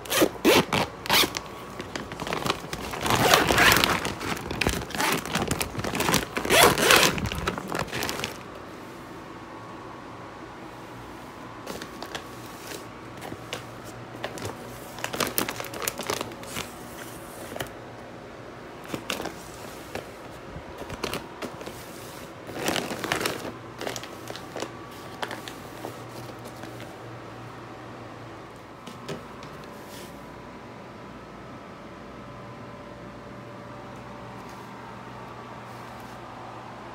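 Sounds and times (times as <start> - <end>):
plastic case crinkling: 0.2 - 8.5, 11.7 - 16.8, 20.8 - 21.8, 22.4 - 26.9.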